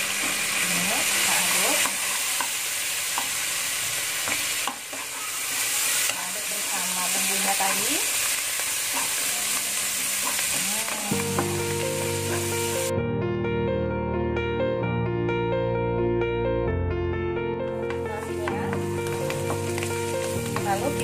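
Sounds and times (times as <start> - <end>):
food sizzling in oil: 0.0 - 12.9, 17.8 - 21.0.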